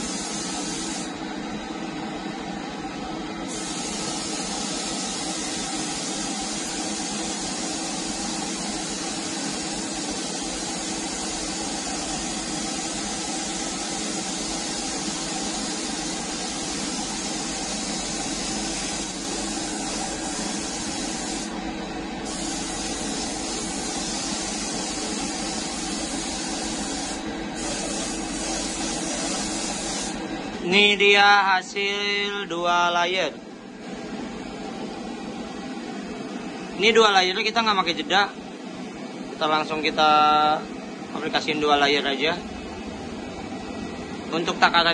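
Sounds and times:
spray gun hissing: 0.0 - 1.1, 3.5 - 21.6, 22.2 - 30.2
steady hum: 0.0 - 44.9.

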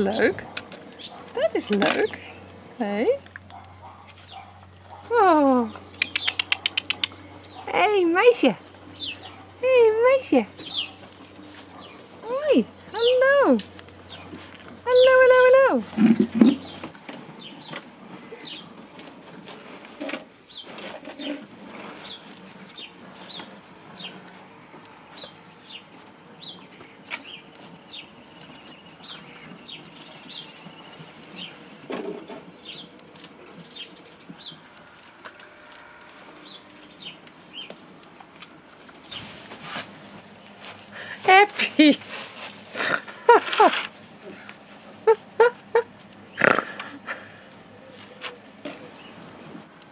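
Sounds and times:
small birds chirping: 0.0 - 18.9, 20.4 - 24.4, 25.0 - 31.8, 32.4 - 35.0, 35.8 - 38.0, 45.1 - 49.5
small paws scrabbling and clicking: 3.2 - 7.7, 10.5 - 12.4, 13.0 - 45.2, 45.8 - 49.9.

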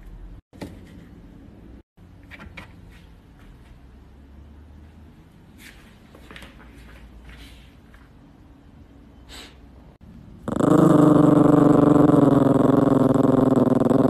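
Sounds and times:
dog growling: 10.4 - 14.0.

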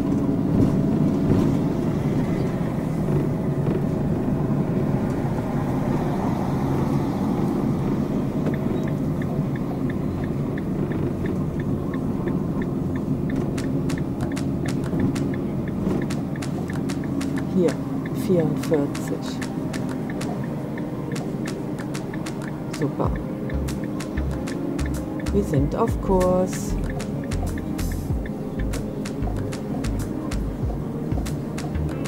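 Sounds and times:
van engine and road rumble: 0.0 - 32.0
light ticking: 8.4 - 32.0.

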